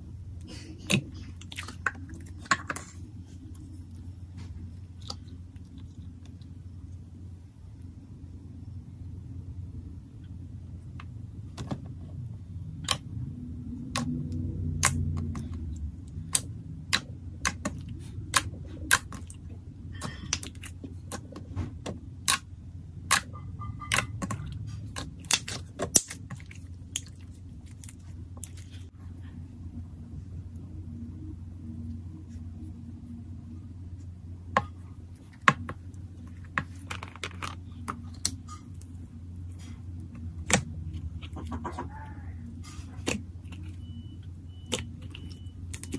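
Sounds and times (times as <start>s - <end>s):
low steady hum: 0.0s - 45.9s
slime clicking and popping: 12.8s - 13.1s, 16.2s - 19.3s, 22.2s - 22.4s, 23.1s - 24.4s, 25.0s - 26.3s.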